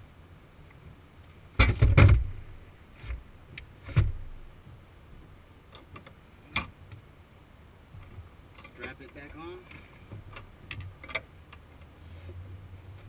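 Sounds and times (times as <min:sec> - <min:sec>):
light clicks and taps: 0:08.0 - 0:11.9.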